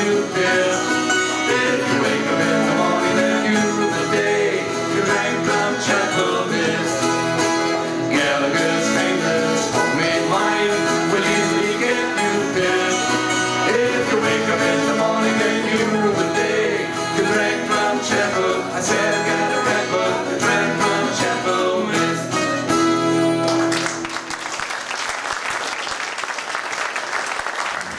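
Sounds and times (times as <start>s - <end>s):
person singing: 0.0s - 22.7s
folk band playing: 0.0s - 24.3s
audience applause: 23.4s - 27.9s.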